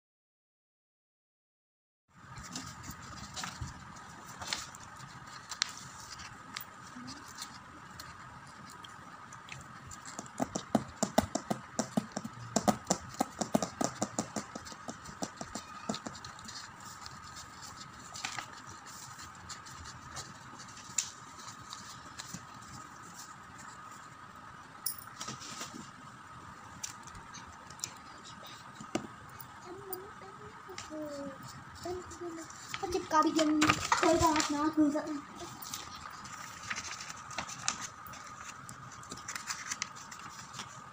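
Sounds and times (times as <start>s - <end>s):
faint high hum: 2.1s - 13.4s, 14.2s - 40.9s
paper rustling: 2.2s - 10.4s, 14.0s - 24.2s, 30.7s - 40.9s
pen clicks and taps: 10.0s - 16.2s.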